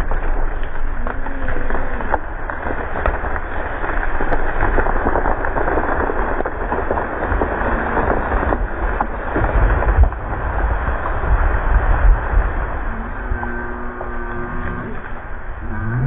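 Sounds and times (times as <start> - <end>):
branches crackling and breaking: 0.0 - 16.0.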